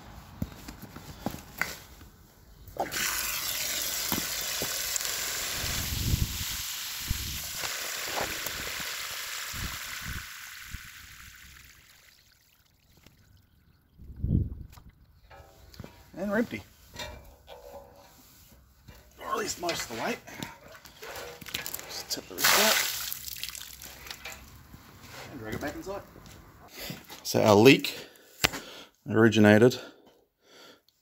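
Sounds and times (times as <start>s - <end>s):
water gushing from drain valve: 2.8s - 14.3s.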